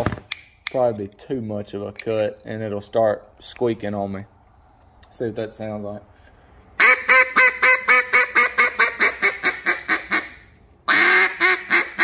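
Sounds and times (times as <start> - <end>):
duck call quacking notes: 6.8 - 12.0.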